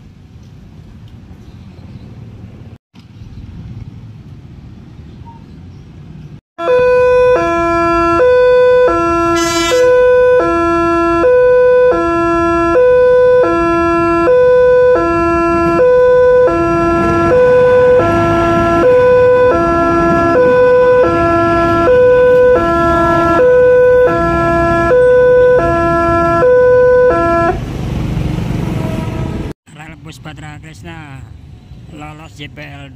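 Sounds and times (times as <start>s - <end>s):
two-tone level crossing alarm: 6.6s - 27.6s
diesel railbus rumbling past: 12.0s - 29.5s.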